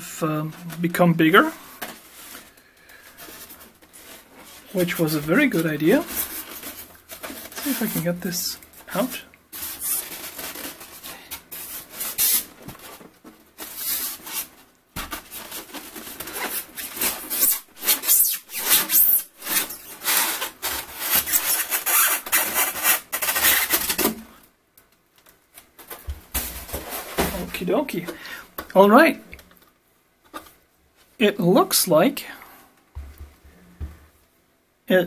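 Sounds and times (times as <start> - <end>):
foam rubbing and scraping: 3.3 - 12.6, 15.2 - 24.0.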